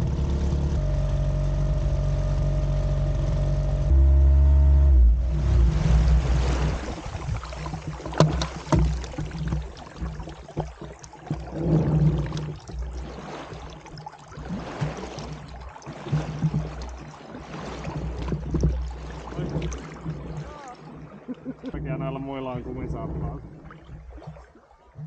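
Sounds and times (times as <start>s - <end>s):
low engine rumble: 0.0s - 10.7s, 15.1s - 23.8s
outboard motor clunks: 0.0s - 24.5s
water splashing around hull: 0.0s - 25.0s.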